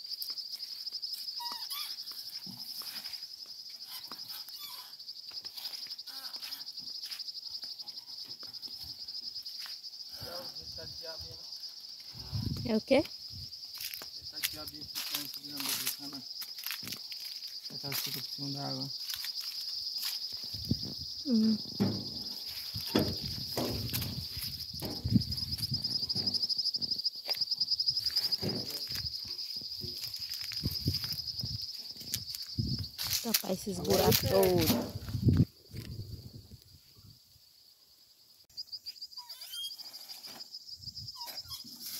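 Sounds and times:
insects chorus pulsing: 0.0s - 41.9s
knocks and scrapes: 21.6s - 27.0s, 28.0s - 29.1s
low thumps: 21.6s - 27.0s.

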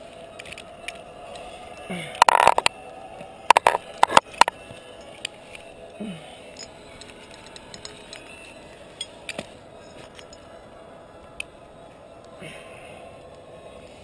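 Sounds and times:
climbing gear clinking: 0.3s - 2.7s, 3.5s - 5.7s, 6.5s - 10.5s.

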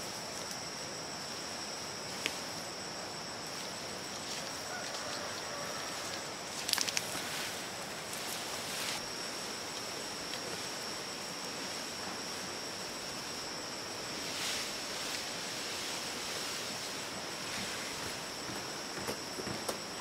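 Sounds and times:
high-pitched insect drone: 0.0s - 20.0s
steady hiss: 0.0s - 20.0s
soft rustle: 3.4s - 13.4s, 14.1s - 19.2s.

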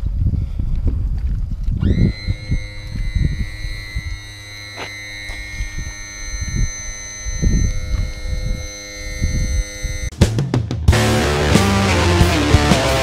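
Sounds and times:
gusty wind on microphone: 0.0s - 4.3s.

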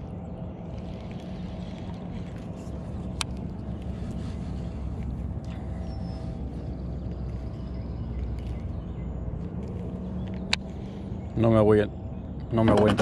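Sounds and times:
faint hum: 0.0s - 12.6s
steady low rumble: 0.0s - 12.7s.

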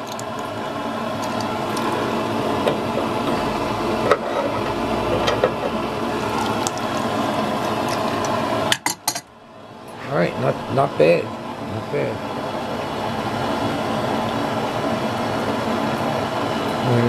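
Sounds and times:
water sloshing in a bucket: 6.0s - 8.4s.

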